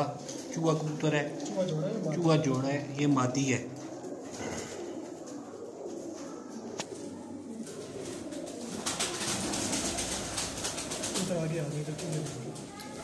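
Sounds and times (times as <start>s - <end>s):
pigeons cooing: 0.0s - 13.0s
rustling of handled pigeon: 0.0s - 13.0s.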